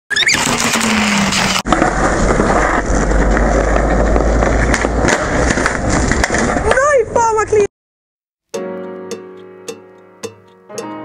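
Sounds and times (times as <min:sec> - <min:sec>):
skateboard wheels rolling on stone: 0:00.1 - 0:07.6.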